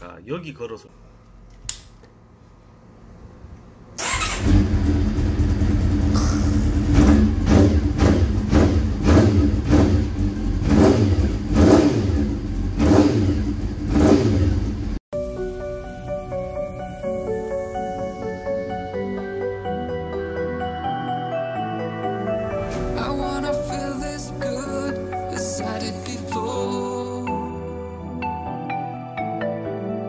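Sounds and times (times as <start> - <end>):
motorcycle engine revving: 4.0 - 15.0.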